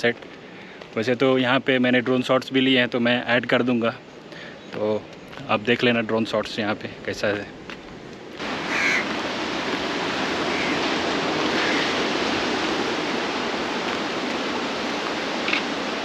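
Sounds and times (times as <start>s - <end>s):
wind: 0.0s - 16.0s
sea waves at the shore: 3.0s - 16.0s.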